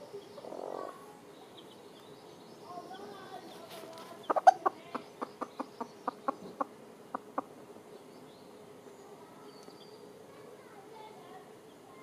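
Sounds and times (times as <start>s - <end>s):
hen clucking: 0.0s - 1.2s, 3.6s - 7.6s.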